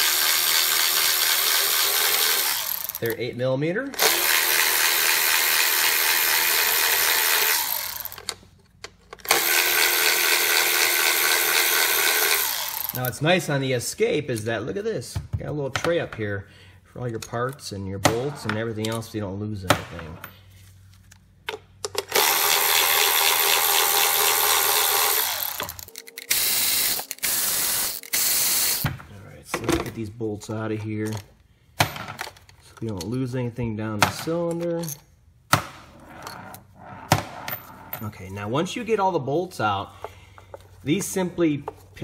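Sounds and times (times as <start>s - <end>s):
cordless ratchet spinning bolts: 0.0s - 3.2s, 4.0s - 8.3s, 9.2s - 13.2s, 22.0s - 28.8s.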